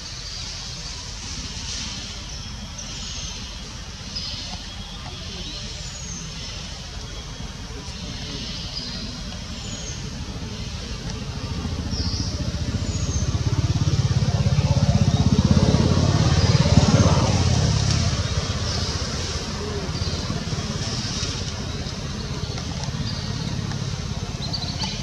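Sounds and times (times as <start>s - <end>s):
motorbike passing by: 10.0s - 25.0s.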